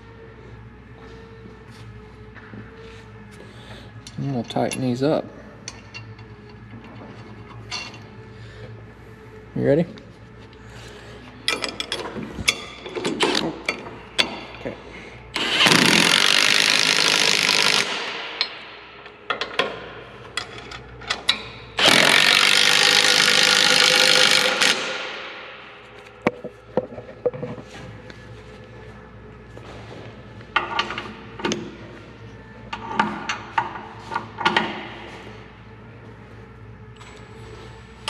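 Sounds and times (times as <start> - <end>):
impact wrench hammering: 21.3 - 25.4.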